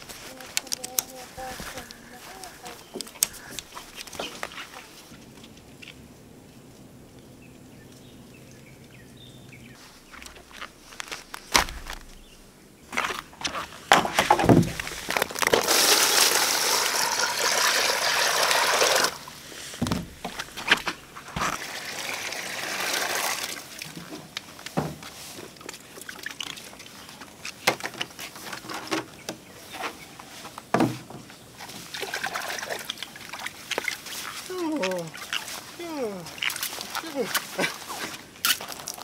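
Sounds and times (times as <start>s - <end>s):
clicks and knocks of handling: 0.4s - 2.0s
water pouring and splashing: 13.9s - 20.8s, 21.4s - 28.7s, 31.6s - 39.0s.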